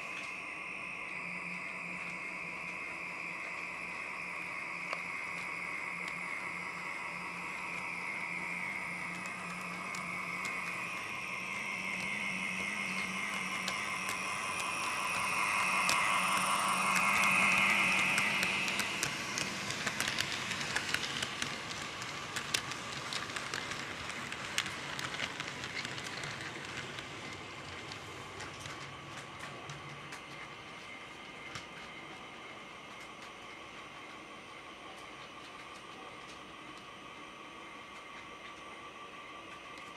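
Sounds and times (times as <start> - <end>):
model train motor whining: 0.1 - 27.1.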